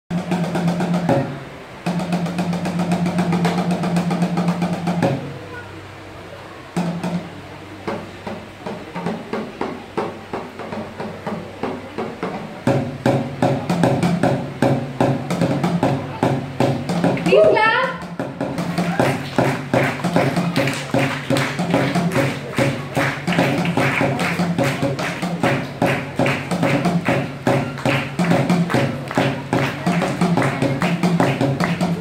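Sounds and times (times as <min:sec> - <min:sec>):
sticks beating plastic drums: 0:07.9 - 0:32.0.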